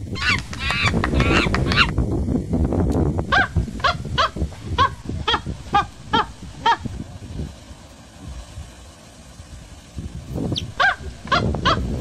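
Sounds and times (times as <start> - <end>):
monkeys screaming: 0.1 - 1.9, 10.6 - 11.8
monkey short calls: 0.2 - 1.9.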